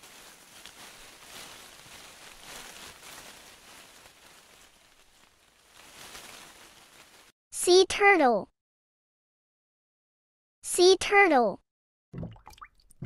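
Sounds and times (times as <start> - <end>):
rustling in grass: 0.0 - 7.4.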